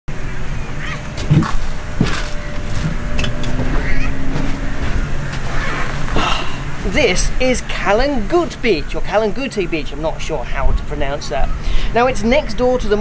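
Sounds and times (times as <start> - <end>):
low beach rumble: 0.1 - 13.0.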